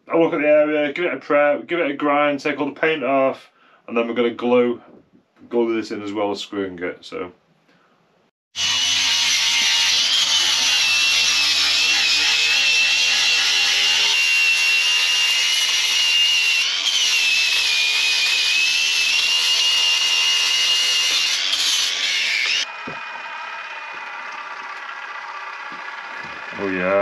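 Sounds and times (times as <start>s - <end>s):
angle grinder grinding metal: 8.6s - 27.0s.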